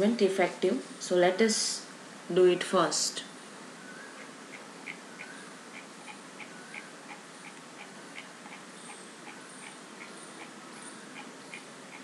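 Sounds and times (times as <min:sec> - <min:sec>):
low room hiss: 0:00.0 - 0:12.0
faint even ticking: 0:04.0 - 0:12.0.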